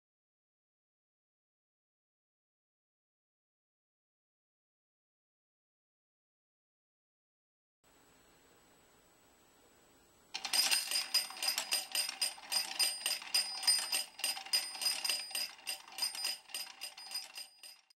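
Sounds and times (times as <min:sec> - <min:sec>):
bell ringing: 0:10.4 - 0:18.0
rapid clatter of mechanism clicks: 0:10.4 - 0:18.0.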